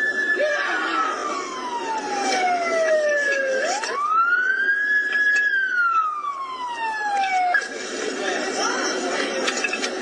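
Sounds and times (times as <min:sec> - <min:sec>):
emergency vehicle siren wailing: 0:00.0 - 0:08.0.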